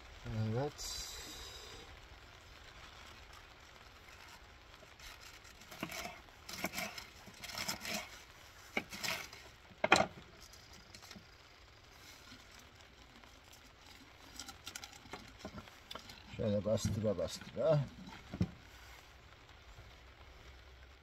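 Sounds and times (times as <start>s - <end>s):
cabbage rustling and crinkling: 2.7s - 19.3s.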